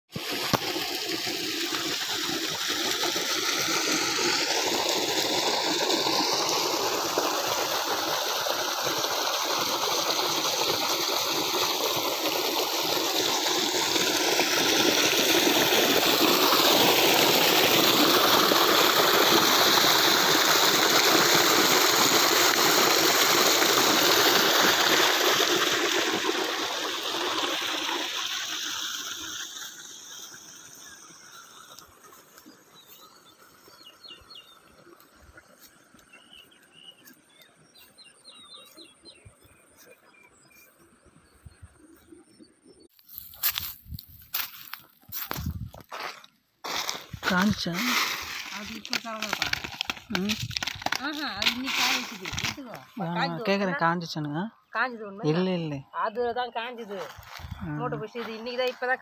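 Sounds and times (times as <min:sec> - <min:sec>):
water gushing from a pipe: 0:00.1 - 0:35.6, 0:46.6 - 0:54.1.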